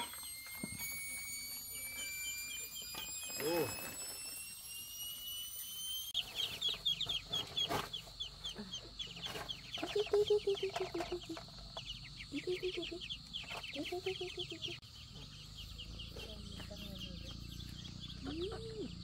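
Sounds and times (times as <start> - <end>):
ducklings peeping: 4.7 - 19.0.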